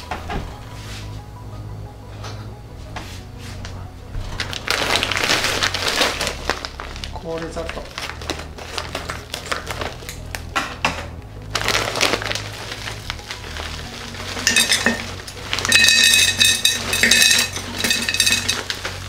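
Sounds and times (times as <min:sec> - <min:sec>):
sugar crystals clinking against glass: 0:11.6 - 0:19.0.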